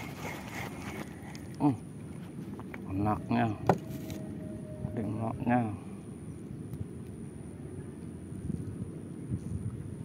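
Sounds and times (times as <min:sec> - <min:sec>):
wind buffeting microphone: 0:06.2 - 0:10.0.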